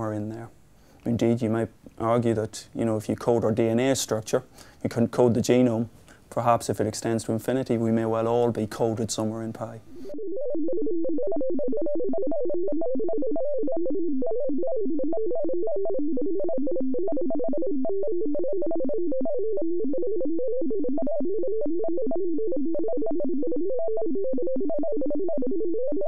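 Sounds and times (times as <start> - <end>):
fast computer-generated tones: 7.9 - 26.0.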